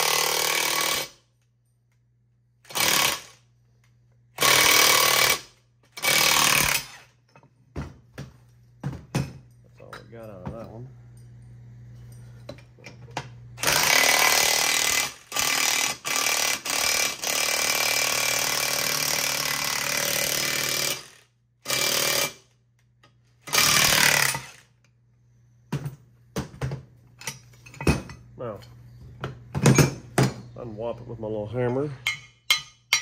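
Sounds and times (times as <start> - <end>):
impact wrench hammering: 4.4 - 7.1, 32.0 - 33.0.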